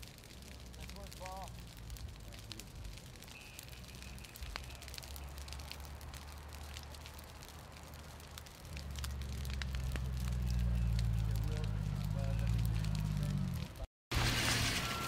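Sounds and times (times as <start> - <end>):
burning brush crackling: 0.0 - 15.0
low rumble: 4.4 - 13.8.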